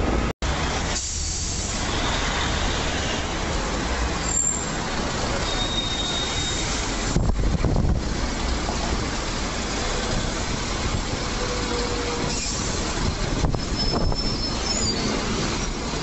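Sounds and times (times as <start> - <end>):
bus engine rumble: 0.0 - 16.0
road traffic: 0.0 - 16.0
bus brake squeals: 4.2 - 4.8, 5.4 - 6.8, 11.4 - 15.8.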